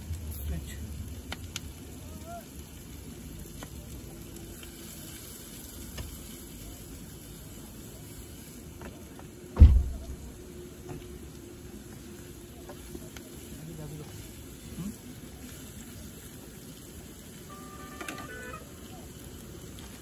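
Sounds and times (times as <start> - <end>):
steady background hiss: 0.0 - 20.0
heavy thump: 9.6 - 10.2.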